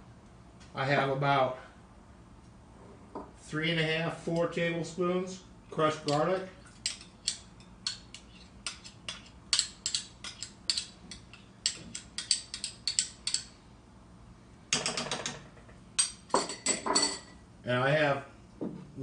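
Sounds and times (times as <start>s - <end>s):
metal spoons clicking and scraping: 6.0s - 13.6s.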